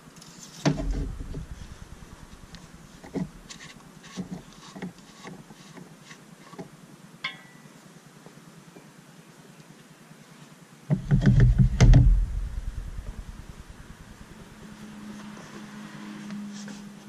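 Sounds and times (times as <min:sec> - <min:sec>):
hands clicking and knocking on engine: 0:10.9 - 0:12.4.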